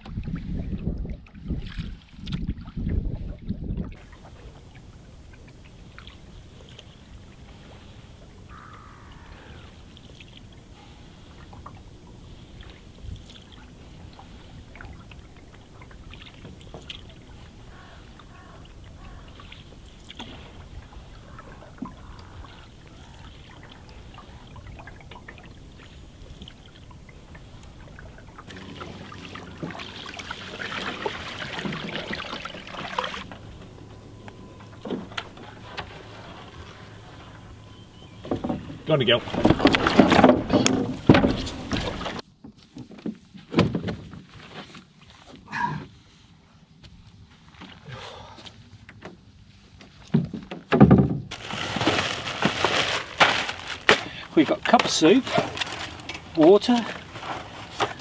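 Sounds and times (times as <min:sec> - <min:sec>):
canoe paddle strokes: 0:03.9 - 0:47.9, 0:51.3 - 0:58.0
canoe scraping through reeds: 0:06.4 - 0:08.4, 0:25.7 - 0:33.6, 0:34.7 - 0:42.2, 0:51.3 - 0:58.0
water drips: 0:12.6 - 0:33.6.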